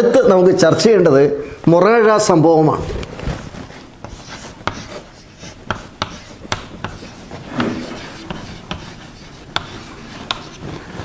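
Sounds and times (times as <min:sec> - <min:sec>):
chalk scratching on blackboard: 0:03.4 - 0:11.0
chalk tapping on blackboard: 0:04.0 - 0:11.0.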